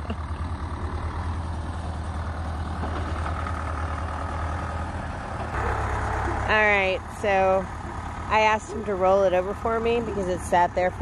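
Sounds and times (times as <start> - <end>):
tractor engine running: 0.0 - 11.0.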